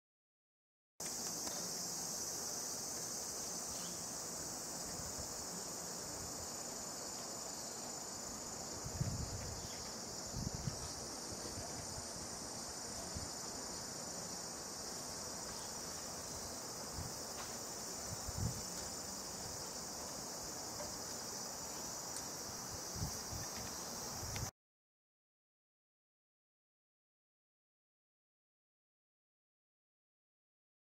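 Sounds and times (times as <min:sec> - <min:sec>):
insects droning: 0:01.0 - 0:24.5.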